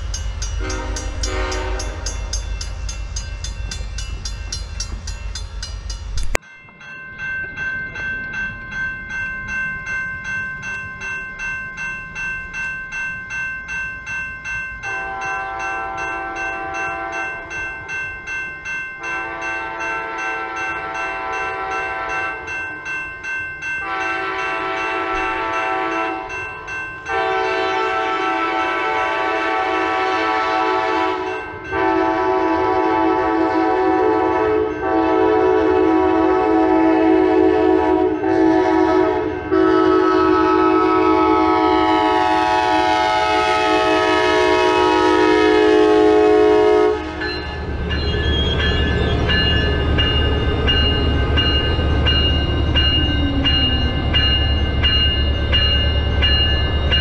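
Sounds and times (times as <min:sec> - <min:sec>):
freight train rumbling: 0:00.0 - 0:13.8, 0:23.7 - 0:57.0
crossing bells ringing: 0:00.0 - 0:57.0
locomotive horn blasts: 0:00.6 - 0:02.4, 0:14.9 - 0:17.4, 0:19.1 - 0:22.5, 0:23.8 - 0:26.3, 0:27.1 - 0:47.5.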